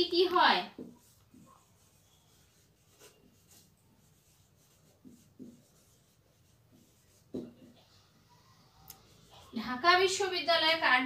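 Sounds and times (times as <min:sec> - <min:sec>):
marker squeaking on whiteboard: 0:00.0 - 0:09.8.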